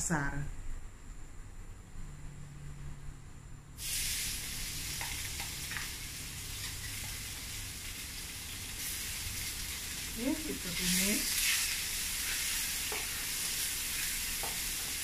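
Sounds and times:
paste sizzling in hot oil: 3.8 - 15.0
spatula tapping a pan: 4.9 - 5.9, 12.8 - 13.2, 14.4 - 15.0.

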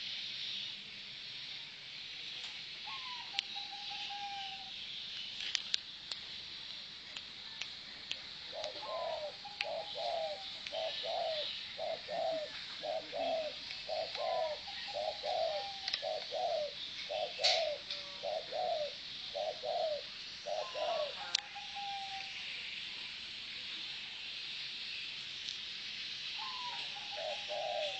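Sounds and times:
dove cooing: 2.8 - 4.7, 8.5 - 22.3, 26.4 - 27.9.

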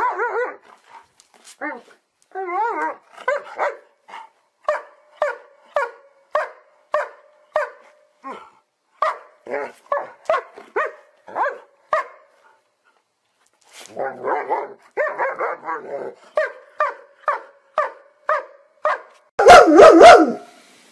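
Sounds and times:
dog barking: 3.3 - 3.9, 4.7 - 7.8, 9.0 - 12.3, 14.2 - 20.5.

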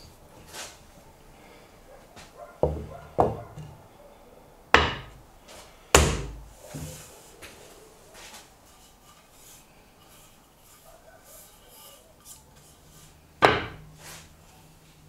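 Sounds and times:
wooden knocks on a workbench: 2.6 - 3.8, 4.8 - 5.1, 13.4 - 13.8.

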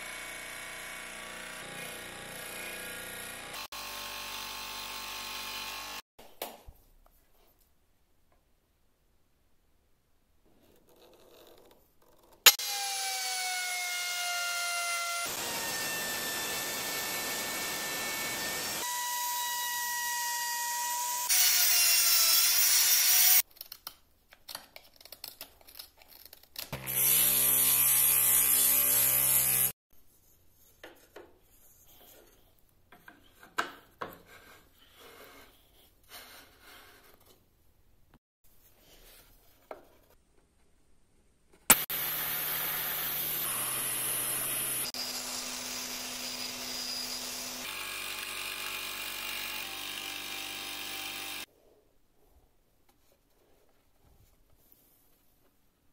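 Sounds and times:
power tool motor whine: 41.7 - 51.5.

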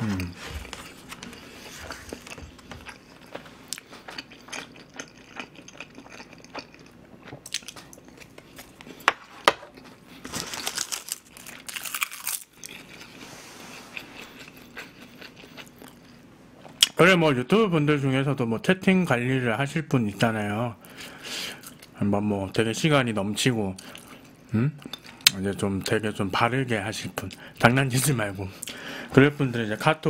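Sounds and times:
man chewing food: 0.0 - 16.9, 20.8 - 22.0, 23.8 - 25.4.

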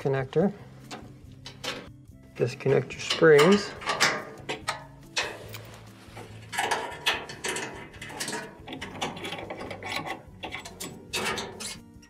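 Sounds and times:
metal springs clicking and rattling: 2.7 - 12.0.

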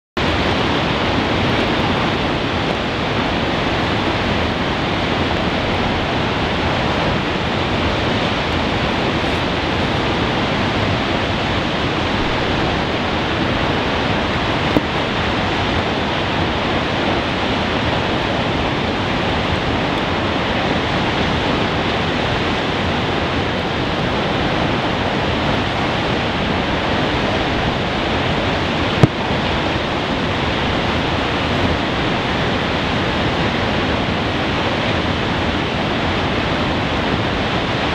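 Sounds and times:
roar of rushing water: 0.2 - 37.9.

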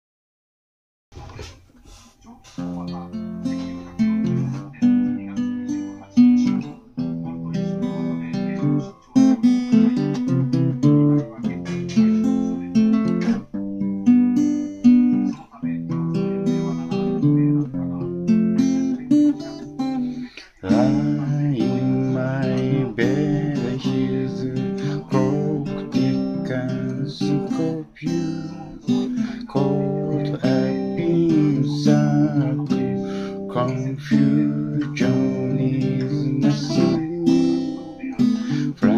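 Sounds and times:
acoustic guitar strummed: 2.6 - 38.9.

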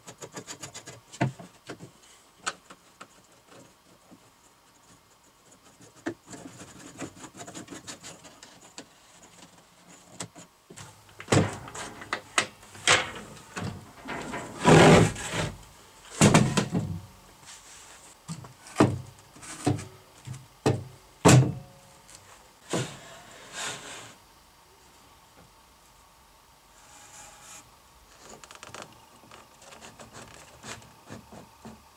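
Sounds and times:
wood and tools knocking: 10.8 - 15.6.

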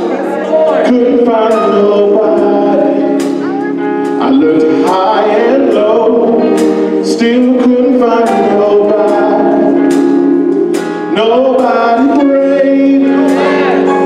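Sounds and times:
choir singing: 0.0 - 6.8, 11.9 - 14.0
drum kit: 0.0 - 14.0
organ: 0.0 - 14.0.

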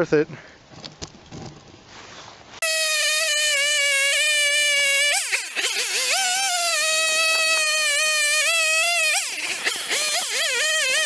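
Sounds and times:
chainsaw cutting log: 2.6 - 11.0.

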